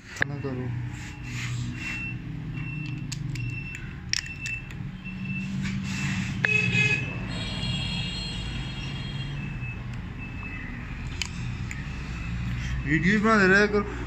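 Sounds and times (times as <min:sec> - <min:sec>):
small metal parts clicking: 0:02.6 - 0:04.8.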